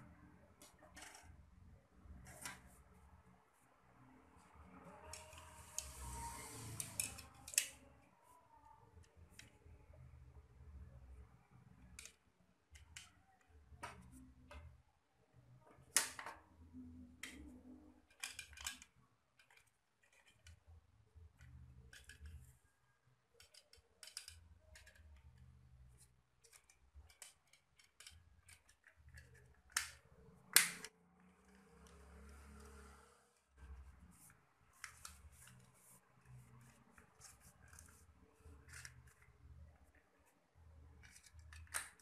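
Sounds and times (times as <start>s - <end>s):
plastic clicks and rattles: 17.2s - 20.6s, 23.3s - 25.5s, 26.4s - 30.9s, 41.0s - 42.0s.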